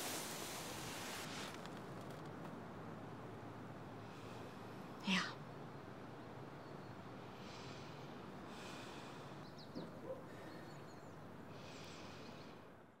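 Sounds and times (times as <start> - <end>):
outdoor background noise: 0.0 - 13.0
person breathing softly: 7.3 - 9.4, 11.4 - 12.7.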